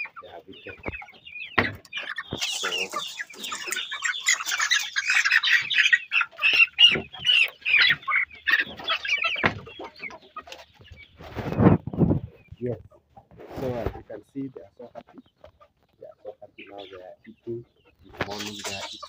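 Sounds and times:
chickens clucking: 0.0 - 19.0
dull knocks: 9.4 - 9.7.

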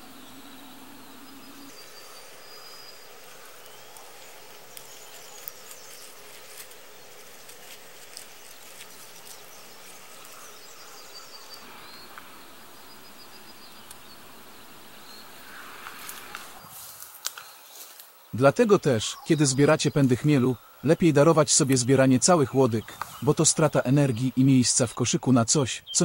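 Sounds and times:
steady hiss: 0.0 - 26.0
fingers rustling plant stem: 3.6 - 11.0.

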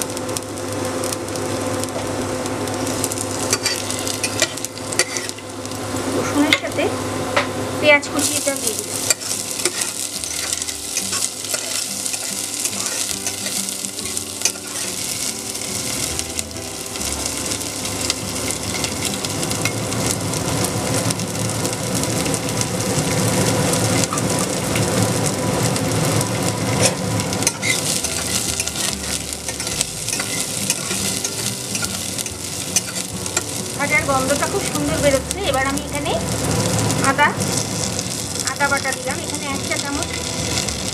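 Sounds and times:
onion and garlic sizzling in oil: 0.0 - 40.9
metal spatula scraping pan: 3.5 - 5.4, 9.0 - 15.3, 26.7 - 33.5.

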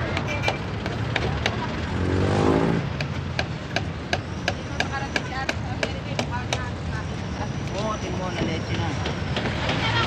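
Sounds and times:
road traffic: 0.0 - 10.0
vehicle engine revving: 1.6 - 3.4.

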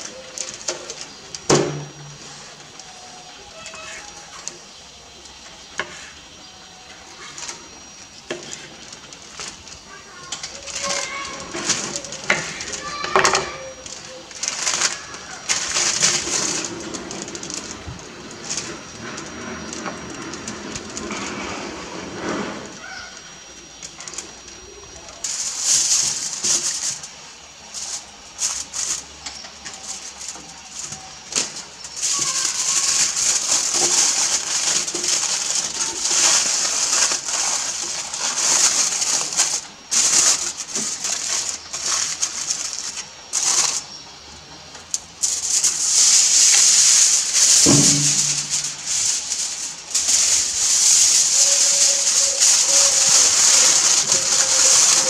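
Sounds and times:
aluminium foil crinkling: 0.0 - 55.0.

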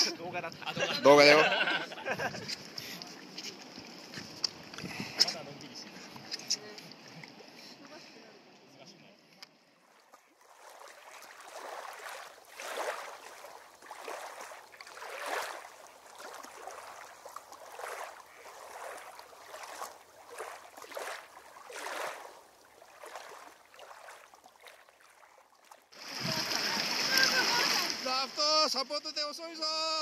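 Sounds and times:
river water rushing: 9.8 - 25.2, 25.9 - 29.2.

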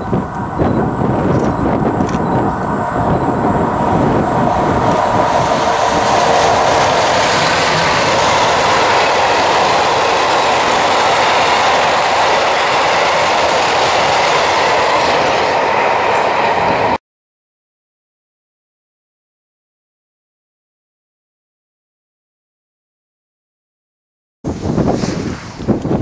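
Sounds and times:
freight train passing: 0.0 - 17.0.

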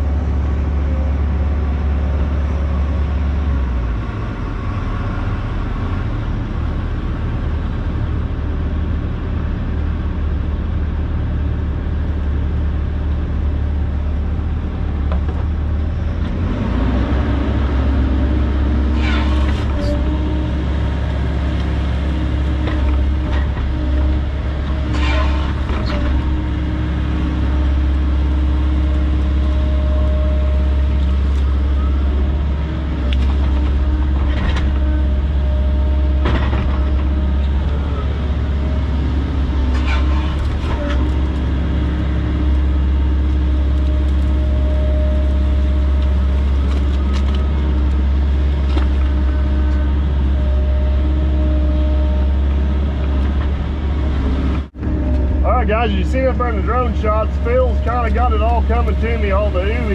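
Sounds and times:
excavator diesel engine running: 0.0 - 59.9
hydraulics working: 14.2 - 59.9.

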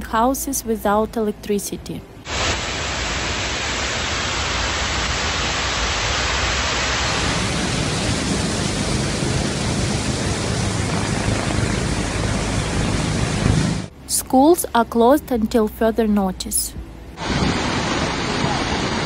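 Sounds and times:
floodwater rushing: 2.3 - 13.9, 17.2 - 19.0.

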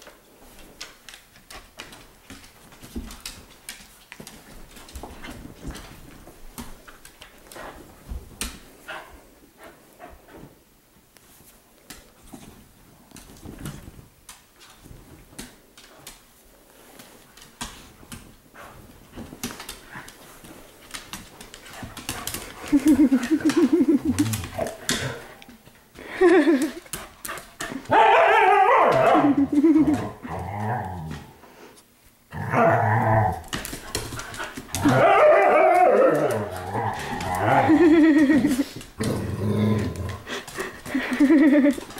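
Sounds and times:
dogs growling in play: 22.2 - 25.6, 29.3 - 31.4, 32.3 - 41.5.

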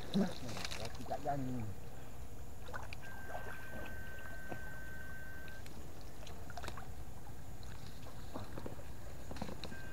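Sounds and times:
shallow water sloshing: 0.0 - 1.4, 2.5 - 9.8
faint ticks and splashes: 0.0 - 9.9
thin high whine: 3.0 - 5.8, 9.6 - 9.9.

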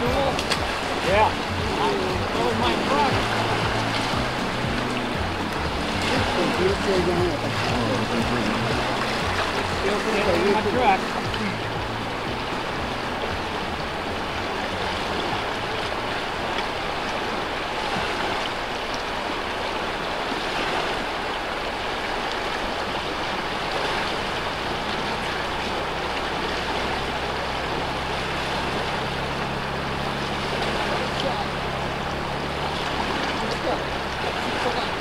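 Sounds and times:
river water rushing: 0.0 - 35.0.

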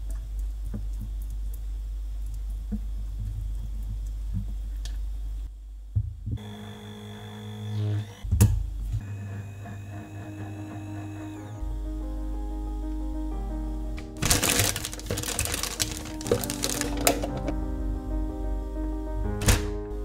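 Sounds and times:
low hum: 7.6 - 20.0.

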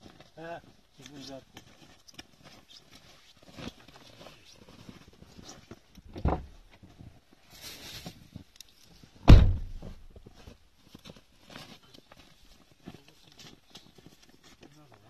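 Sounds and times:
dull thumps: 9.3 - 10.4.

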